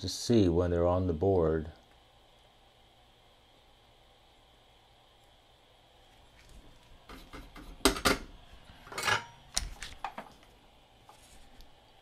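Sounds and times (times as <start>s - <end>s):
tools clacking on a workbench: 8.9s - 10.4s.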